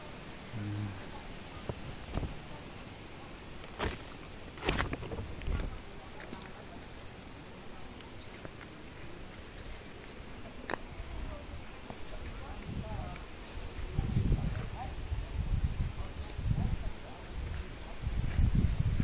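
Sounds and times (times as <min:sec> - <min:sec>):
leaves rustling: 0:00.0 - 0:19.0
footsteps on stony soil: 0:03.6 - 0:06.6.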